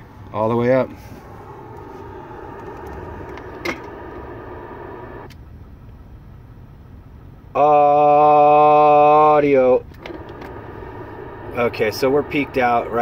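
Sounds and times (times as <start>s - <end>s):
low hum inside a car: 0.0s - 13.0s
faint drone: 0.7s - 5.4s, 10.0s - 13.0s.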